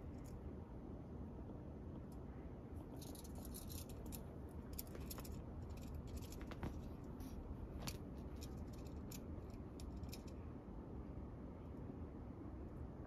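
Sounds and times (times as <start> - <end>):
cat paws scuffing cloth: 6.0 - 8.4.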